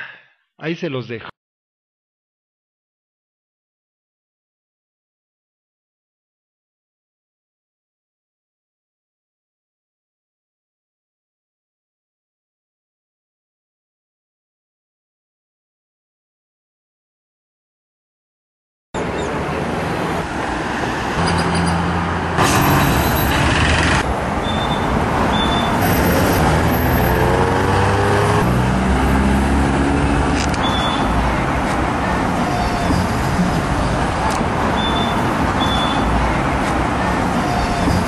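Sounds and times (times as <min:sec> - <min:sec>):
rush of traffic noise: 0:19.0 - 0:38.0
vehicle engines passing: 0:19.0 - 0:38.0.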